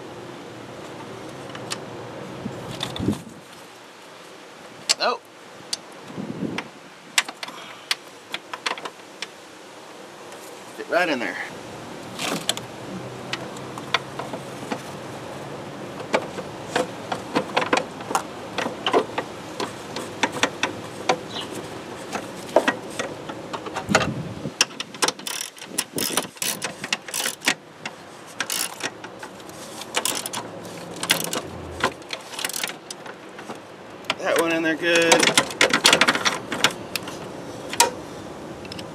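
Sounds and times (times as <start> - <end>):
ratchet clicking: 24.9 - 27.6, 28.4 - 29.0, 29.9 - 32.8
metal tools clinking: 29.8 - 32.8.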